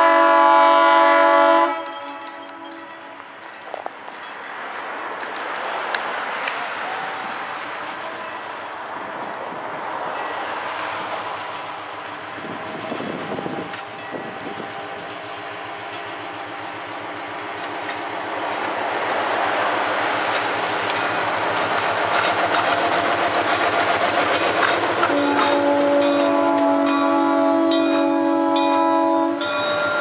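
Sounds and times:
train horn: 0.0s - 3.2s, 25.0s - 30.0s
wheels clicking over rail joints: 1.8s - 30.0s
locomotive diesel engine running: 11.2s - 28.8s.

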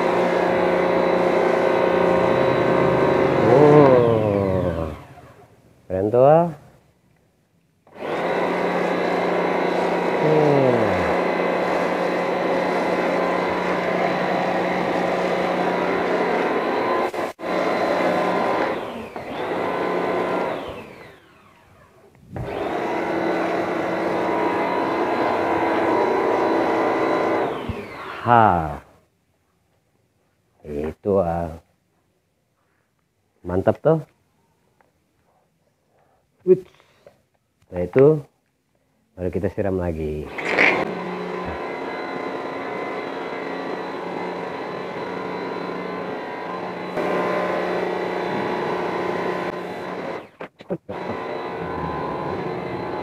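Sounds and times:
electric motor humming: 0.0s - 5.5s, 7.9s - 28.3s, 40.3s - 53.0s
motor starting with a knock: 27.5s - 28.0s.

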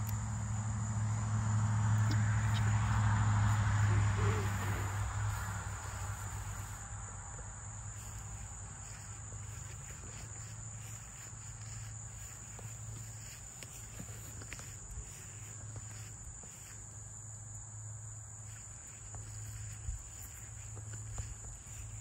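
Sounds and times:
insects chirring: 0.0s - 22.0s
low hum: 0.0s - 22.0s.

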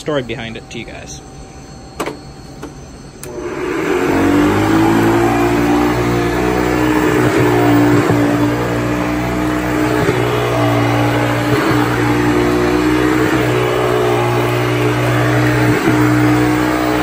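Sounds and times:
vacuum cleaner motor running: 1.5s - 17.0s.

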